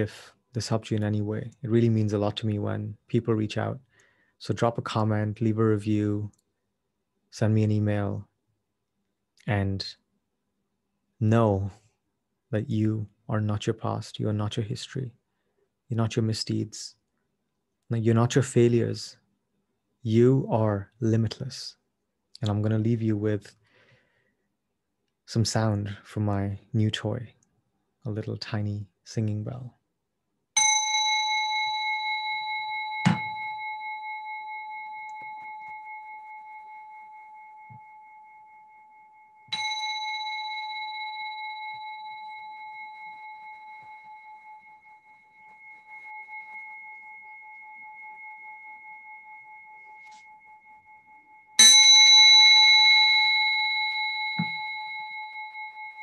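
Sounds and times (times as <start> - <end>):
singing bell ringing: 30.6 - 56.0.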